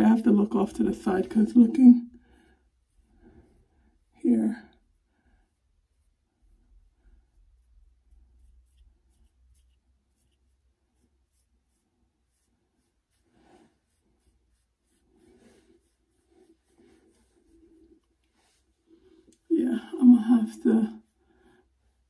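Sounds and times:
fingertips rustling in hair: 6.0 - 22.0.

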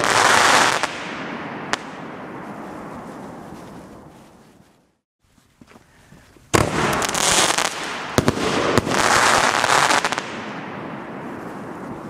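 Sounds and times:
dense firework crackling: 0.0 - 4.1, 6.5 - 12.0
firework mortar bang: 6.5 - 10.4.

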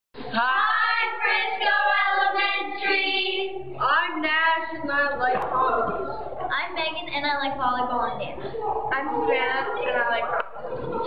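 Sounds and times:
children singing: 0.2 - 4.0.

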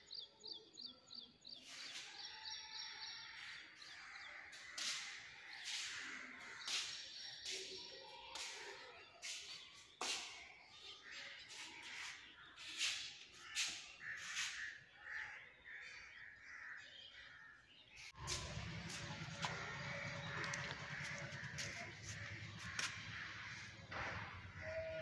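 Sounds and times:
crows cawing: 13.3 - 17.6, 18.2 - 25.0.

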